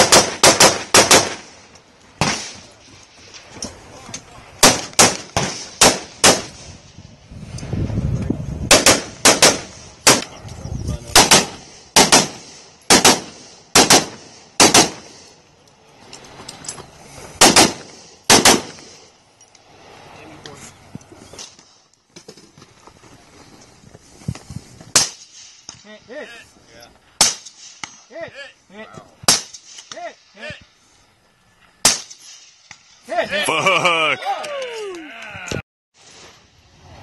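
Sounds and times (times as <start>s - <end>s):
rifle shots: 0.0s - 1.6s, 2.2s - 2.6s, 4.6s - 6.6s, 8.7s - 10.3s, 11.1s - 15.2s, 17.4s - 19.0s, 29.3s - 29.8s, 31.8s - 32.5s.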